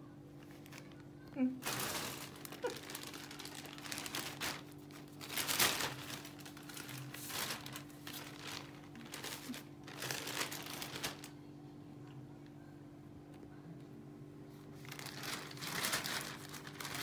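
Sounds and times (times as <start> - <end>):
plastic bag crinkling: 0.4 - 11.4, 14.8 - 17.0.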